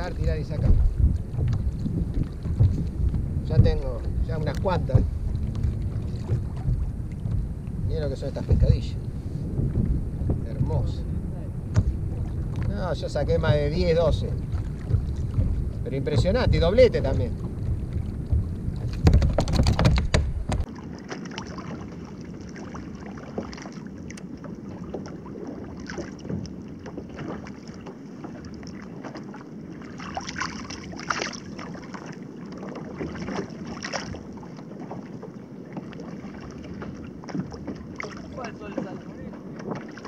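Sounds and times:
small water splashes: 0.0s - 8.9s, 11.6s - 40.0s
water lapping against kayak: 0.0s - 40.0s
wind buffeting microphone: 0.0s - 40.0s.

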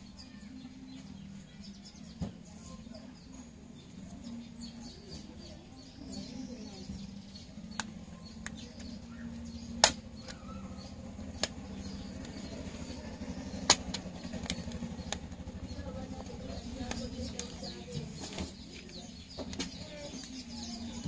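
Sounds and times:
plastic snap clips clicking: 7.7s - 8.9s.

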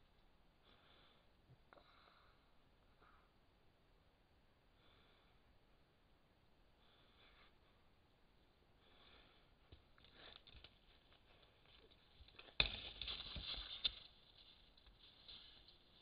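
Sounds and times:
rustling and scraping: 9.7s - 16.0s
animal clawing and scraping: 10.0s - 16.0s.

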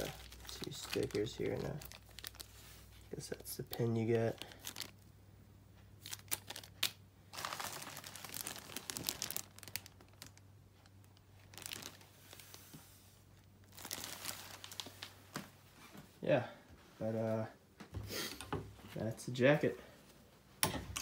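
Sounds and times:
plastic bags crinkling: 0.0s - 5.1s, 6.0s - 12.7s, 13.6s - 15.5s.

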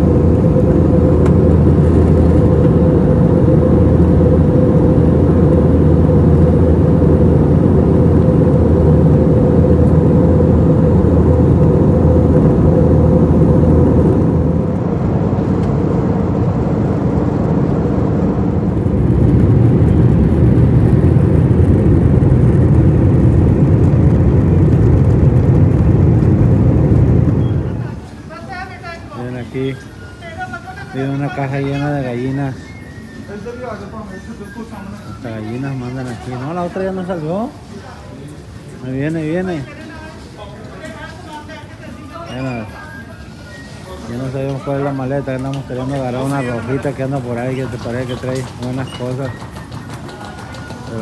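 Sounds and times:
vehicle engine drone: 0.0s - 28.3s, 44.1s - 51.0s.

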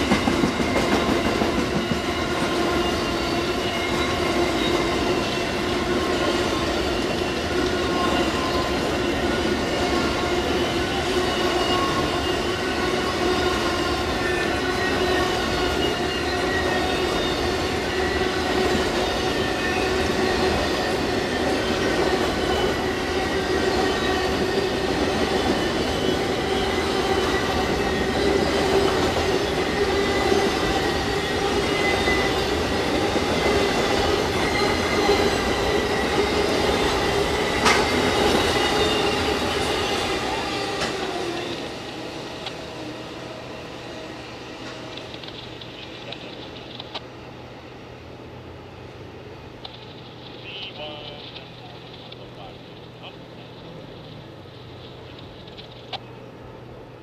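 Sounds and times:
steel wheels rumbling on rails: 0.0s - 47.6s
high metallic wheel squeal: 2.0s - 28.8s, 30.8s - 32.4s, 37.9s - 41.6s.

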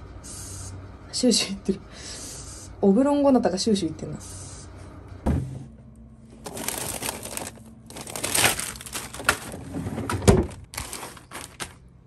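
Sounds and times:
plastic bags crinkling: 6.4s - 11.8s.

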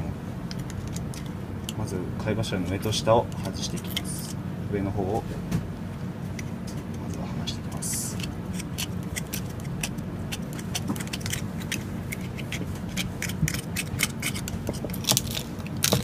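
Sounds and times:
steady low hum: 0.0s - 16.0s
knife scraping oyster shell: 3.3s - 4.4s, 7.8s - 16.0s.

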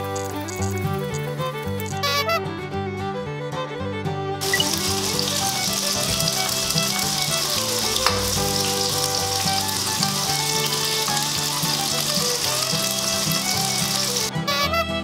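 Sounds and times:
sausages sizzling in a pan: 0.0s - 2.1s, 4.4s - 14.3s
fat spitting crackle: 0.0s - 2.2s, 4.4s - 14.3s.

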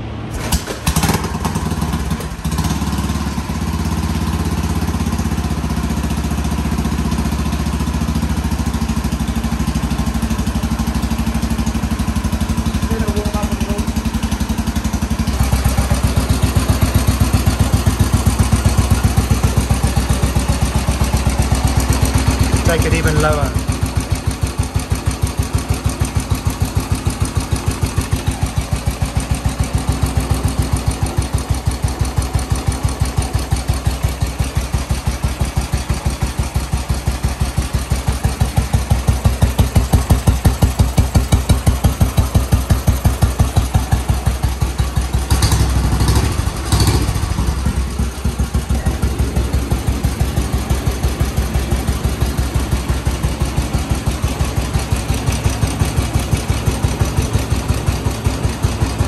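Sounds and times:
motorcycle engine idling: 0.0s - 59.0s.

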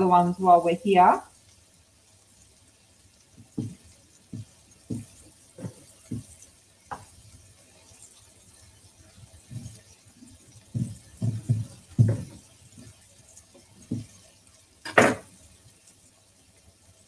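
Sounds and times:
knife knocking on chopping board: 10.8s - 12.4s, 14.9s - 15.3s.

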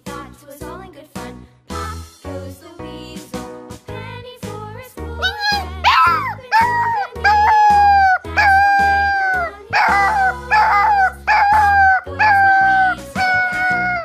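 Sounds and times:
background music: 0.0s - 14.0s
dog howling: 5.3s - 14.0s.

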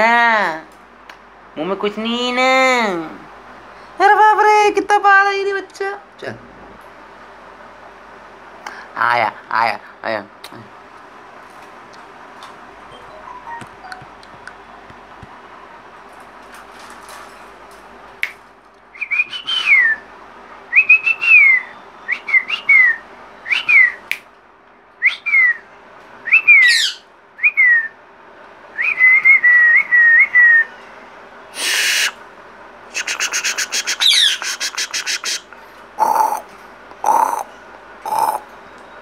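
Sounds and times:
parakeet trilled whistle: 26.3s - 27.9s
parakeet harsh squawk: 26.6s - 27.0s, 33.0s - 38.4s
parakeet raspy chatter: 32.9s - 38.5s.

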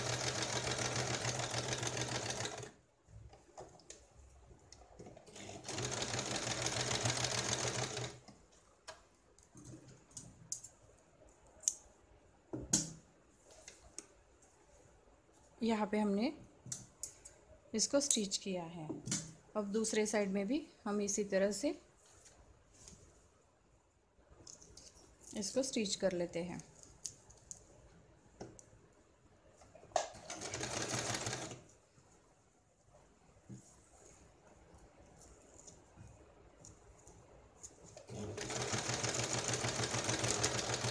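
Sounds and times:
sewing machine running: 0.0s - 2.7s, 5.3s - 8.2s, 30.2s - 31.6s, 38.1s - 40.9s.

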